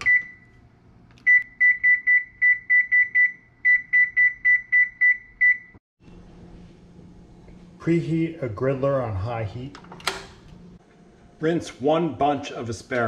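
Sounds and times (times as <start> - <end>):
oven control panel beeping: 0.0 - 0.5.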